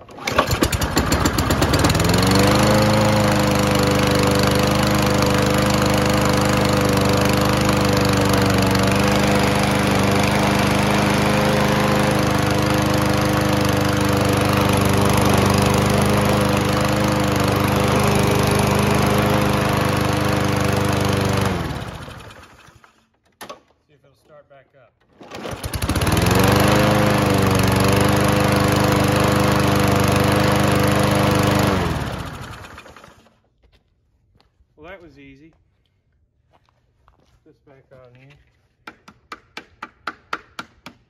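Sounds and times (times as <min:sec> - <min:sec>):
lawn mower engine running: 0:00.0 - 0:23.0, 0:25.2 - 0:33.3.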